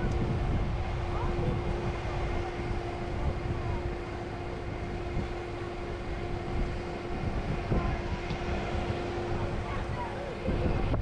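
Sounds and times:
steady mechanical hum: 0.0 - 11.0
wind rumble on microphone: 0.0 - 11.0.

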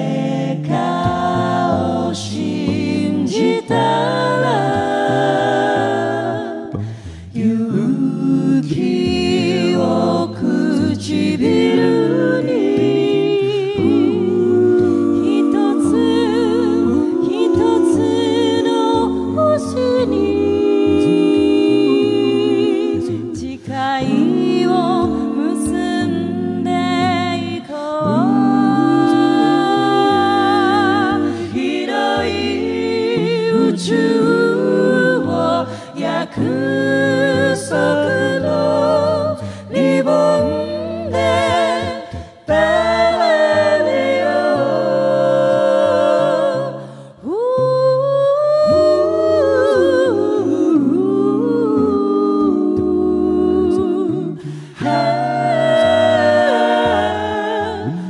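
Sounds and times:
a cappella group singing: 0.0 - 58.0
singers breathing: 6.8 - 7.3, 39.4 - 39.7, 46.8 - 47.2, 54.4 - 54.8.

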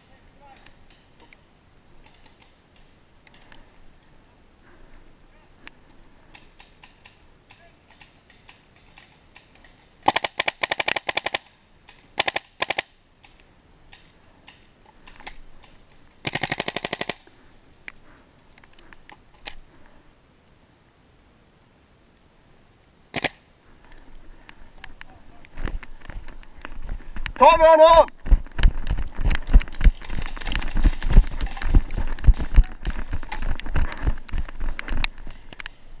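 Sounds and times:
faint clicks and rustling: 2.0 - 5.0, 5.6 - 12.1, 13.2 - 20.0, 23.2 - 27.4, 28.1 - 35.9.

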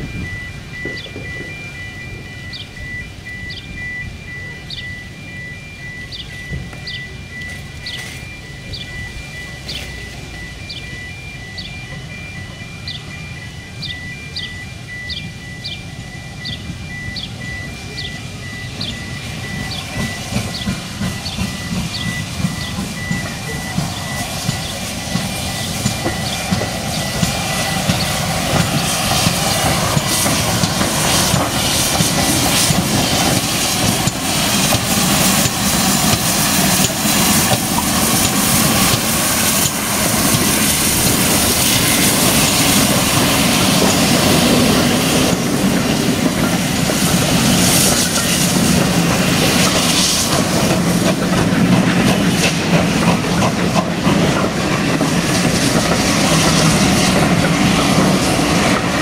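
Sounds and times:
hissing steam: 0.0 - 59.0
train rumble: 0.0 - 59.0
train wheels clicking over rail joints: 0.0 - 59.0.

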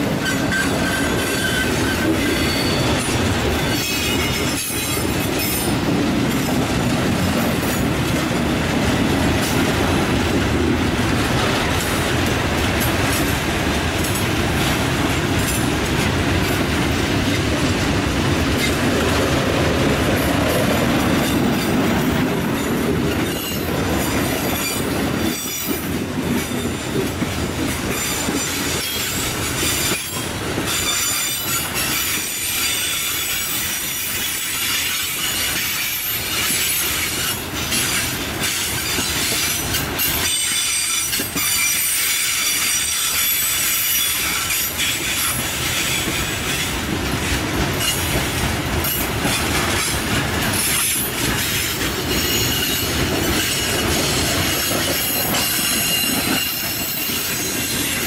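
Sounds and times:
train wheels rumbling on rail: 0.0 - 58.0
wheel squeal: 0.2 - 5.7, 52.1 - 58.0.

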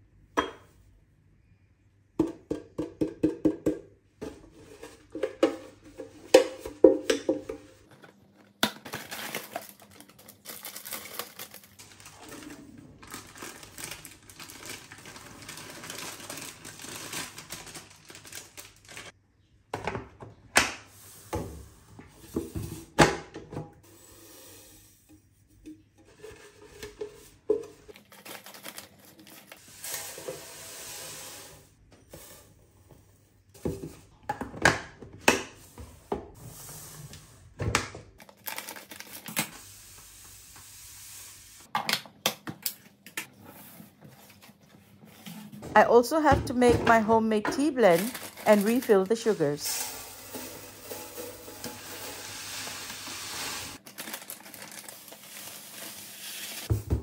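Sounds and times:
containers knocking and crinkling: 2.2 - 18.8, 45.5 - 52.2
powder pouring from plastic bag: 9.1 - 19.1, 47.9 - 56.7.

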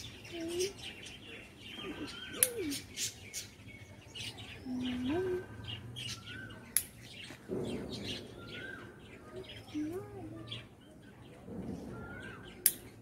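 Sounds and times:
small birds chirping: 0.0 - 13.0
sharp clicks: 12.6 - 12.8.

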